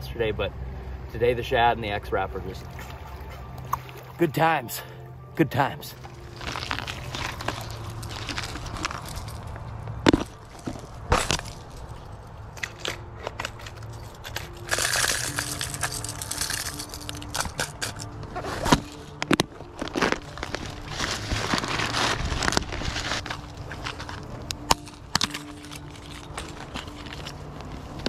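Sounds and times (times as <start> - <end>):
rustling of fabric backpack: 18.3 - 28.0.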